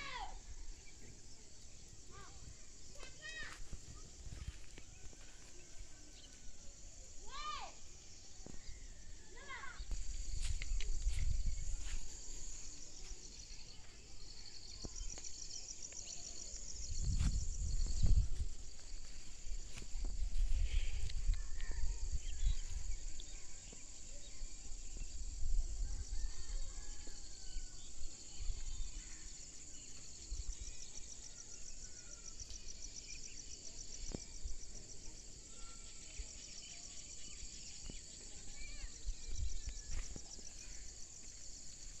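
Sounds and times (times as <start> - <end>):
insects trilling: 0.0 - 42.0
wind buffeting microphone: 9.8 - 12.2, 16.7 - 23.2.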